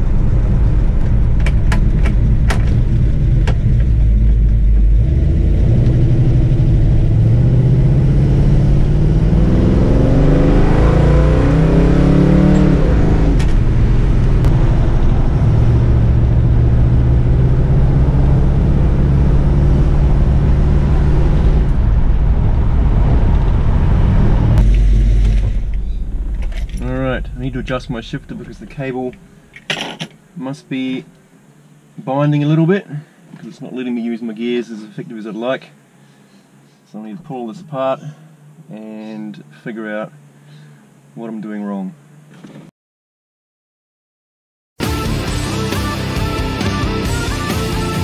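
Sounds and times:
car engine accelerating: 0:00.0 - 0:29.6.

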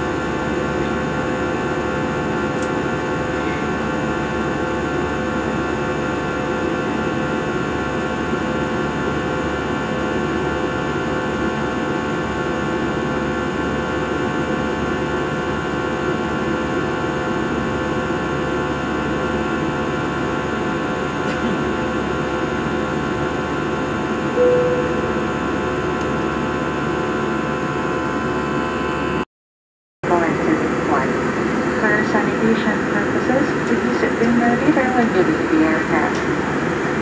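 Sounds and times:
airliner cabin noise: 0:00.0 - 0:06.4, 0:22.6 - 0:26.8, 0:30.0 - 0:37.0.

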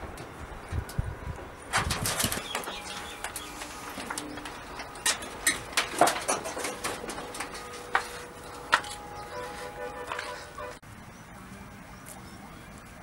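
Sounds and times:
footsteps on dirt: 0:06.8 - 0:10.8.

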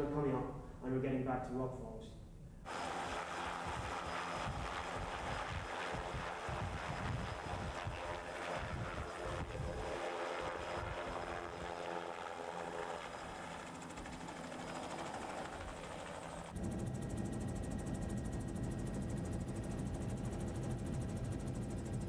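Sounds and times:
helicopter rotor thumping: 0:02.7 - 0:16.8
helicopter engine drone: 0:02.7 - 0:22.0.

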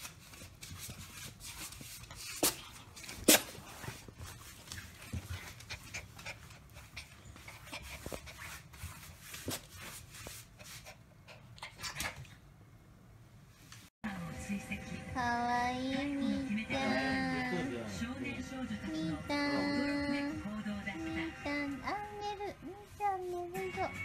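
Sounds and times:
small dog panting: 0:03.8 - 0:08.8, 0:10.4 - 0:12.4.

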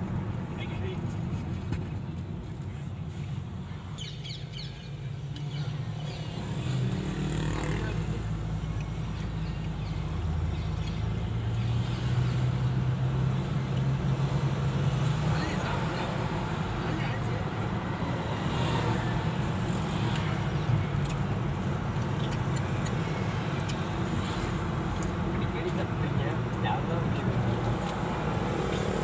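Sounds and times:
road noise inside car: 0:00.0 - 0:29.0
car engine: 0:06.0 - 0:29.0.

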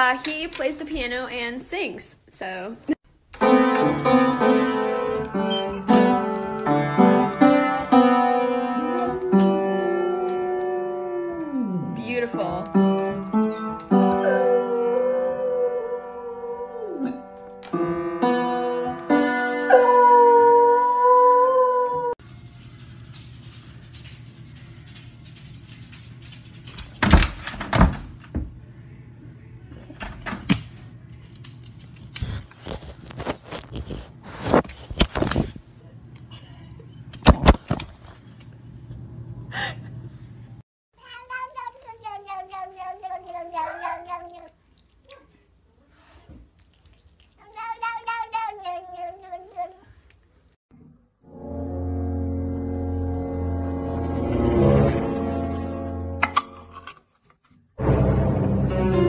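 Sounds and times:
piano notes struck by dog paws: 0:03.3 - 0:15.2, 0:17.0 - 0:20.3
dog howling: 0:08.8 - 0:12.0, 0:14.2 - 0:17.3, 0:19.7 - 0:22.2.

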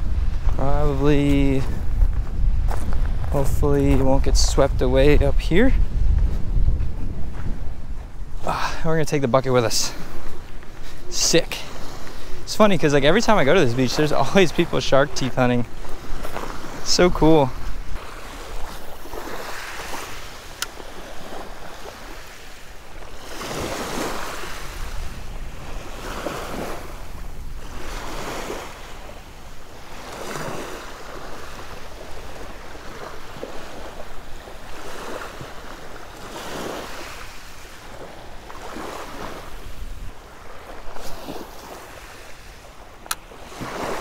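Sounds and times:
small waves washing onto beach: 0:00.0 - 0:44.0
wind rumbling on microphone: 0:00.0 - 0:44.0.

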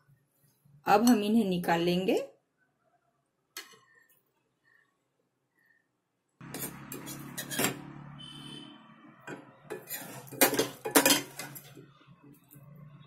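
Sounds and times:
spoon scraping and clinking on pot: 0:06.4 - 0:07.9, 0:09.3 - 0:11.8.

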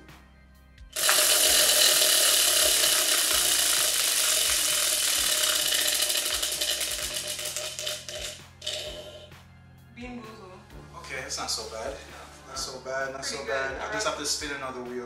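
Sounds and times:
prize wheel pointer clicking: 0:01.0 - 0:09.2.

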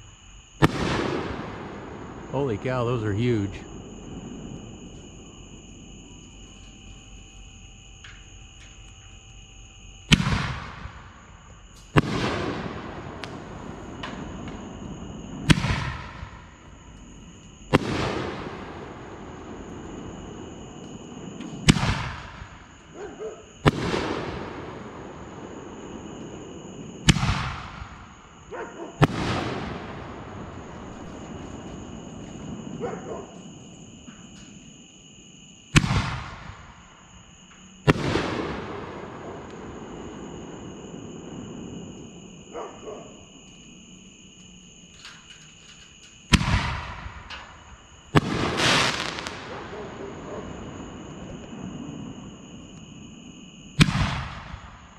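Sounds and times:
firework launch reports: 0:00.6 - 0:04.9, 0:11.9 - 0:16.5, 0:17.7 - 0:22.7, 0:27.0 - 0:28.1, 0:35.7 - 0:36.7, 0:46.3 - 0:52.3, 0:53.8 - 0:54.8
firework shell booming overhead: 0:00.6 - 0:34.8, 0:35.7 - 0:37.2, 0:37.8 - 0:43.4, 0:44.1 - 0:54.9
crackling pops: 0:13.2 - 0:14.6.

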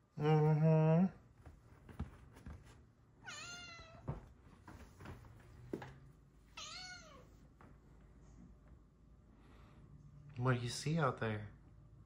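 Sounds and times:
cat meowing: 0:03.2 - 0:04.1, 0:06.6 - 0:07.3.

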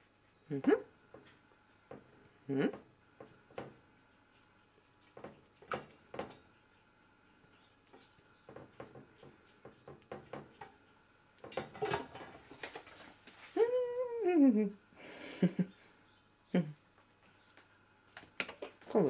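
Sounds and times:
woman saying ooh: 0:13.6 - 0:14.8.

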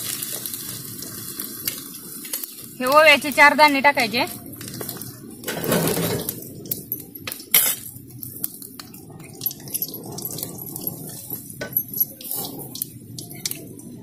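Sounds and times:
seeds frying in oil: 0:00.0 - 0:14.0
metal ladle scraping pan: 0:05.4 - 0:06.3.

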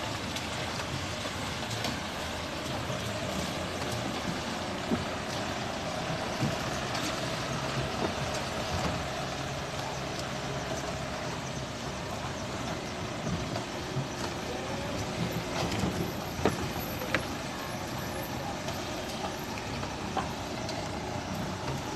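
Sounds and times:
vehicle driving on rough road: 0:00.0 - 0:21.9.

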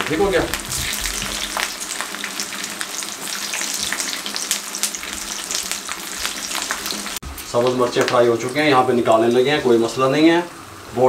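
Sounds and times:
meat sizzling in hot oil: 0:00.0 - 0:10.4.

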